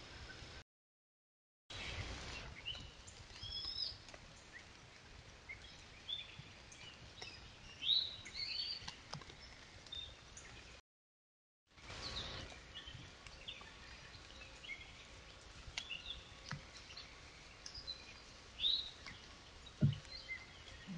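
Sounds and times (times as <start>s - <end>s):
faint steady hiss: 1.8s - 10.8s, 11.8s - 20.9s
birds chirping and singing: 5.4s - 10.8s, 11.9s - 20.9s.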